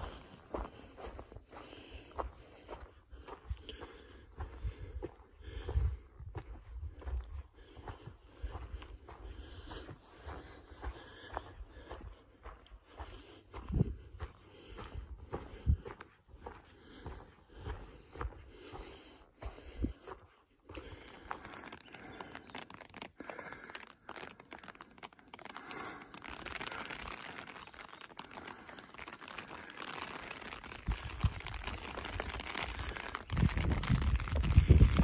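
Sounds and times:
footsteps crunching on rocks: 0.0 - 3.8, 20.6 - 35.0
wind buffeting microphone: 4.4 - 7.5, 13.5 - 16.0, 30.8 - 35.0.

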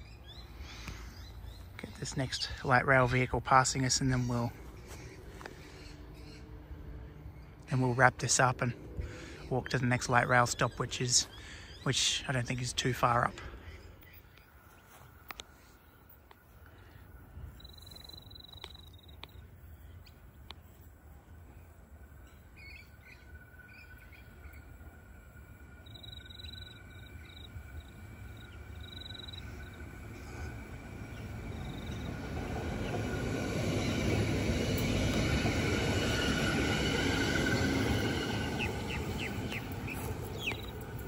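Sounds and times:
birds chirping: 0.0 - 41.0
tram running past: 20.9 - 41.0.

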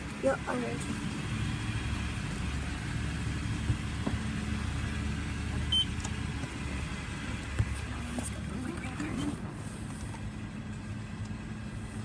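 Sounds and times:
low mechanical rumble: 0.0 - 12.0.

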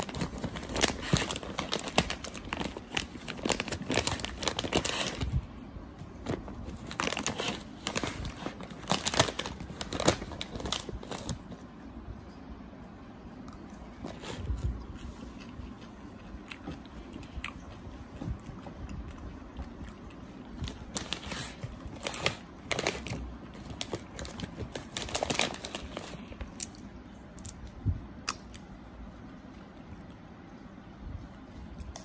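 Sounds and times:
plastic wrapper crinkling: 0.0 - 5.5, 6.1 - 11.6, 20.5 - 27.5.

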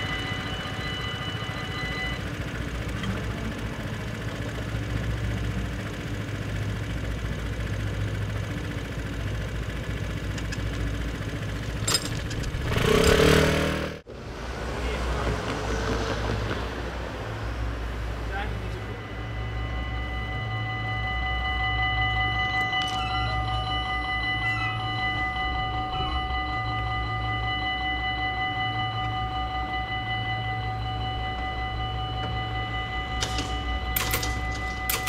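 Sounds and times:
high ringing tone: 0.0 - 7.8, 18.2 - 35.0
vehicle engines idling: 0.0 - 35.0
vehicle revving and accelerating: 12.4 - 18.7.

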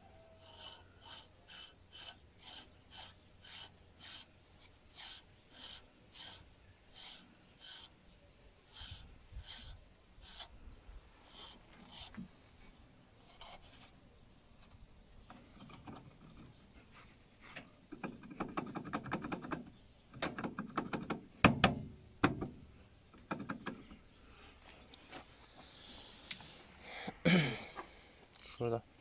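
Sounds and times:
sharp metal knocks: 20.2 - 22.5.

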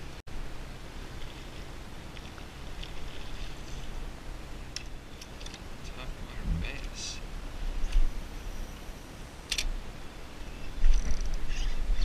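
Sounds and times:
water rumble and hiss: 0.0 - 12.0.

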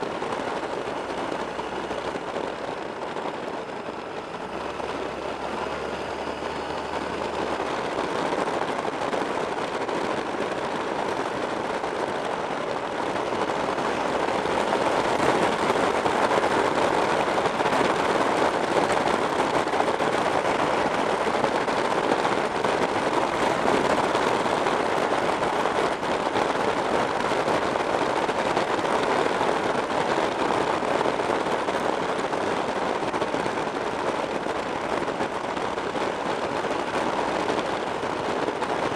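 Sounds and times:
road noise: 0.0 - 38.9
wind buffeting microphone: 0.0 - 38.9.

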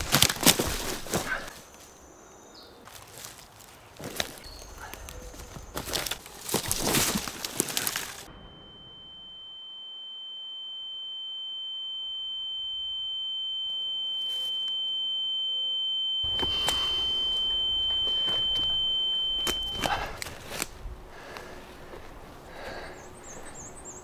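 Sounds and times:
footsteps on dry leaves and twigs: 0.0 - 8.3, 14.2 - 14.7, 16.3 - 23.6
high-pitched ringing tone: 8.2 - 20.6.

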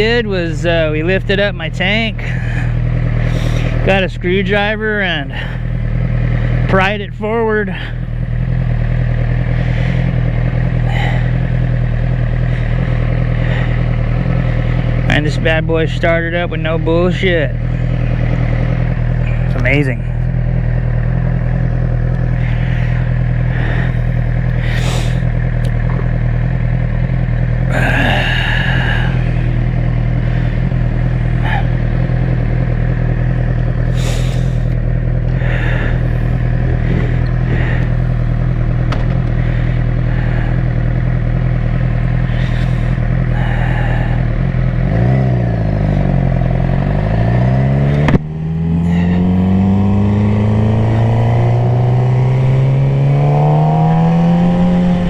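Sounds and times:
motorcycle engine idling: 0.0 - 55.0
motorcycle engine revving: 0.0 - 55.0
gear shift click: 38.6 - 39.4, 47.9 - 48.3.

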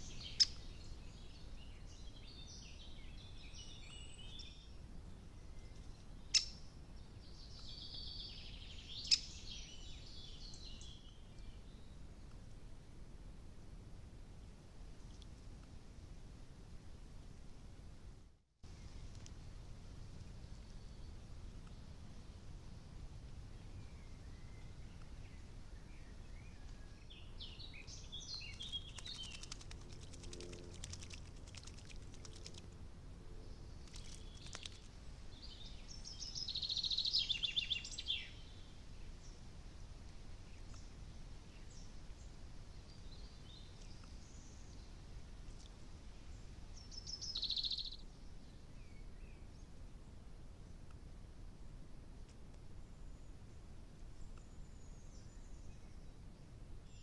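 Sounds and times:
songbirds singing: 0.0 - 12.2, 23.4 - 39.6, 40.3 - 51.0, 52.8 - 57.0
low hiss: 0.0 - 57.0.

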